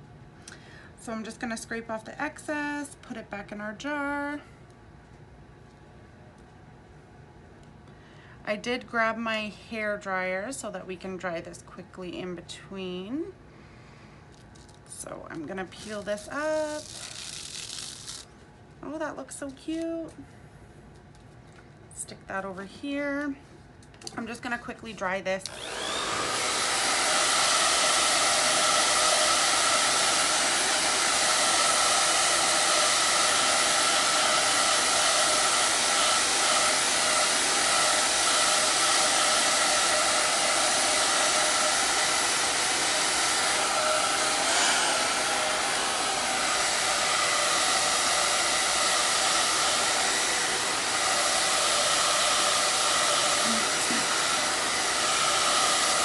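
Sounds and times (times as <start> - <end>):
hair dryer running: 15.4 - 18.3, 24.2 - 56.0.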